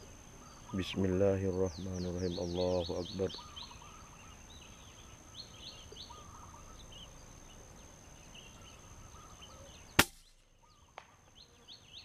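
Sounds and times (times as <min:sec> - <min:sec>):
small birds chirping: 0:00.0 - 0:12.0
rifle shot: 0:10.0 - 0:11.1.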